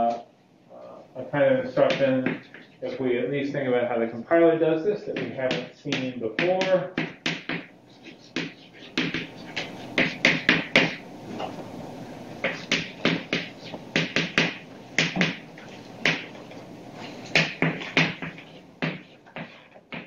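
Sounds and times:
chalk tapping and scratching: 1.8 - 2.9, 5.2 - 11.0, 12.4 - 16.4, 17.0 - 20.0.

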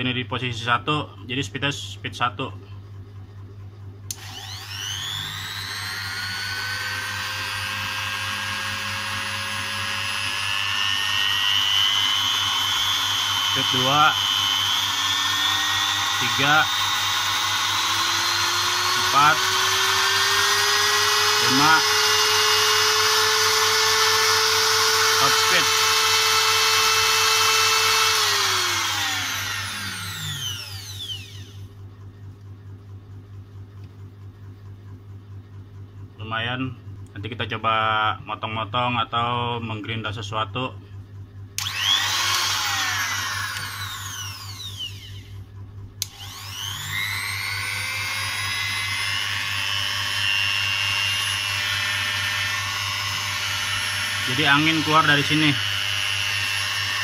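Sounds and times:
die grinder motor whine: 4.1 - 31.7, 41.6 - 57.0.

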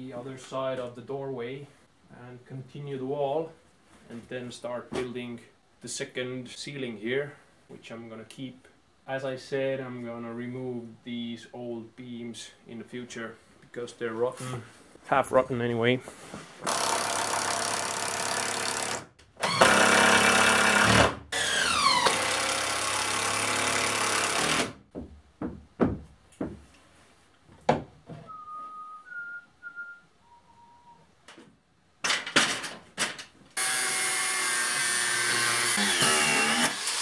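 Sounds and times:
power tool running: 16.6 - 24.7, 33.6 - 37.0
knocks and handling sounds: 24.9 - 28.7, 31.2 - 33.6
angle grinder cutting: 33.6 - 37.0.

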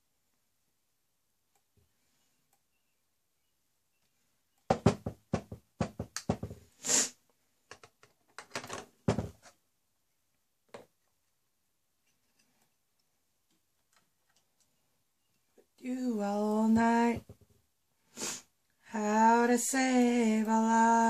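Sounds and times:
objects knocking on hard surface: 4.7 - 6.7, 8.6 - 9.5.

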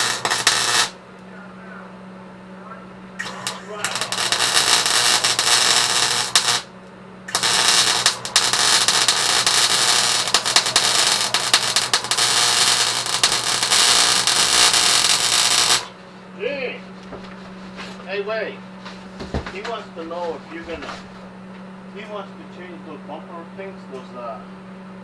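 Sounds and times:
arc welding crackling: 0.0 - 1.2, 3.2 - 16.1
steady low hum: 0.0 - 25.0.

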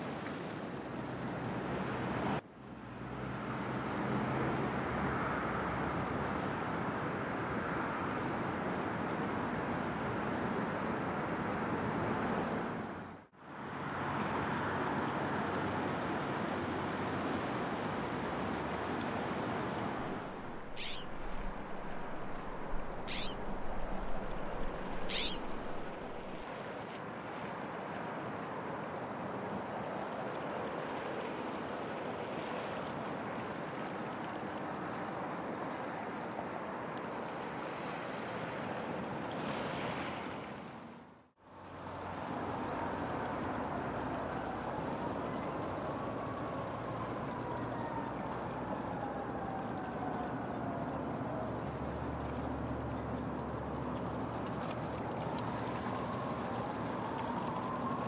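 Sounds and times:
waves rushing along shore: 0.0 - 2.3, 13.6 - 41.0
high descending whistles: 23.0 - 23.4, 25.0 - 25.5.

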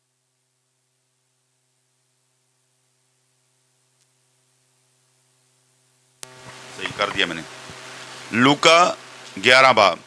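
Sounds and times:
faint electrical hum with hiss: 0.0 - 10.0.

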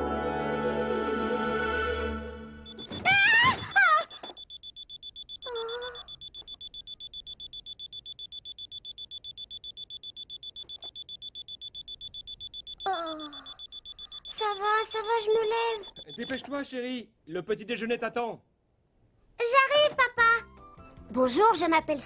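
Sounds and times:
alarm clock beeping rapidly: 2.6 - 16.5
girl groaning sleepily: 5.4 - 6.1, 12.9 - 13.5
girl yawning: 5.5 - 6.0, 12.9 - 13.5.

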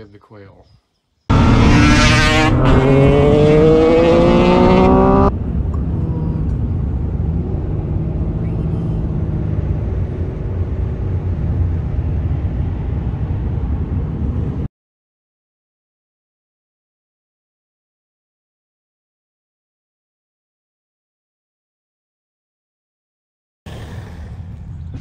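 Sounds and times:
engine and road rumble: 1.3 - 14.7, 23.7 - 25.0
vehicle engine accelerating: 1.3 - 14.7.

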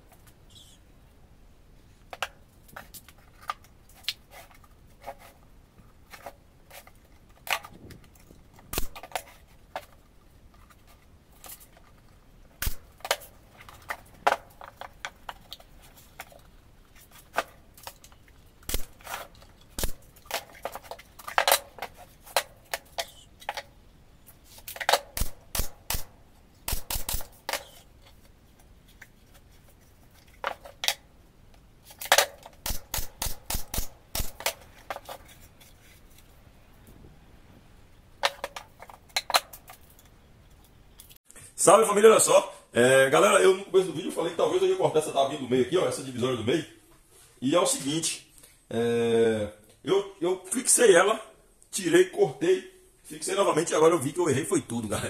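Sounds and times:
pneumatic nailer firing: 12.6 - 12.9, 18.7 - 19.0, 19.8 - 20.0, 24.8 - 26.1, 26.7 - 27.8, 32.0 - 34.6.

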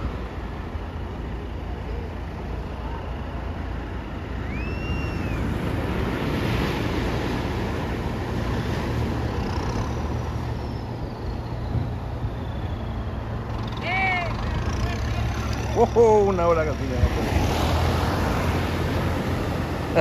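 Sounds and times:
surf breaking on shore: 3.1 - 20.0
faint high whistle: 4.2 - 5.6, 10.6 - 13.8.

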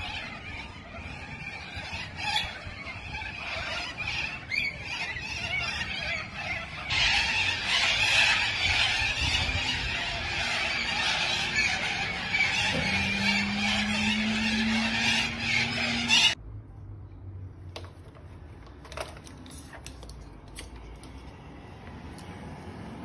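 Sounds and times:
cockatoos screeching: 0.0 - 16.4.

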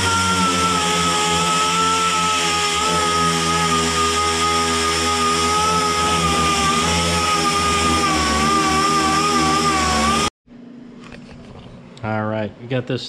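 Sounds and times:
angle grinder sanding steel: 0.0 - 10.3.

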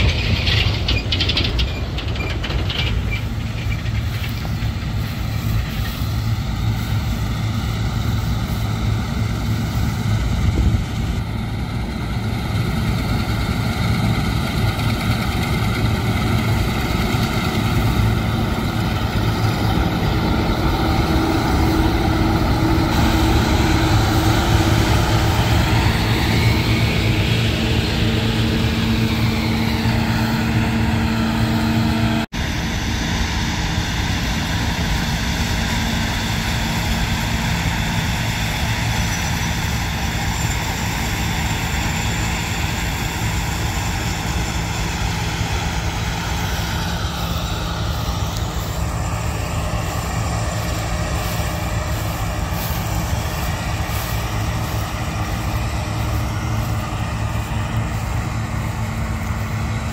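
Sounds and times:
combine harvester engine drone: 0.0 - 59.9.

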